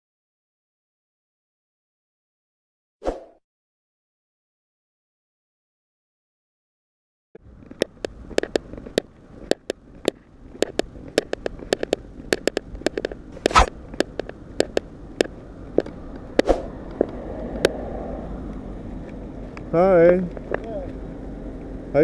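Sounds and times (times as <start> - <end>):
low steady rumble: 7.4 - 22.0
sharp irregular clicks and taps: 7.7 - 17.8.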